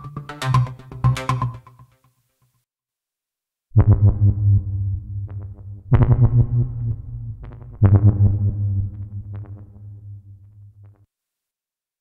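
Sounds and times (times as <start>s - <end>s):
low pulsing synth pattern: 3.8s - 10.9s.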